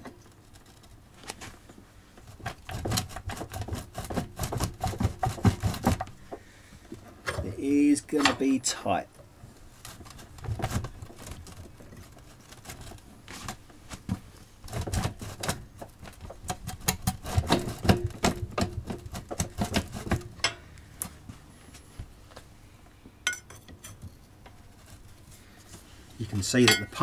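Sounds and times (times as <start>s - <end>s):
metallic clicks and knocks: 8.2s - 8.6s.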